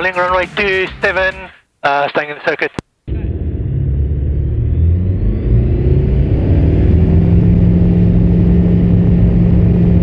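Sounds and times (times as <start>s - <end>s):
propeller plane engine at full power: 3.1s - 10.0s.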